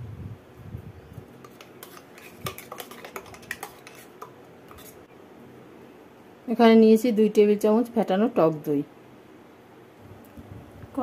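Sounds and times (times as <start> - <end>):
paste scraped from steel jar: 1.4 - 5.0.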